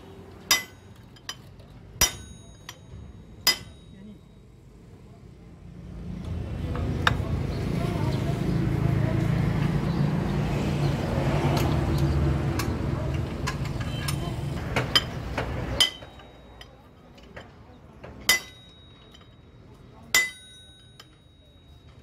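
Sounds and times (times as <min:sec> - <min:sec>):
voices: 0:00.0 - 0:22.0
hammer striking metal bar: 0:00.4 - 0:01.4, 0:02.0 - 0:04.2, 0:13.6 - 0:16.8, 0:18.2 - 0:19.4, 0:20.1 - 0:22.0.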